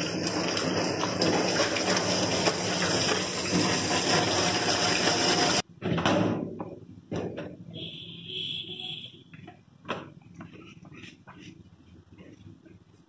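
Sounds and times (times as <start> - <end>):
water splashing into metal tub: 0.0 - 5.6
shower sprayer water spraying: 0.0 - 5.7.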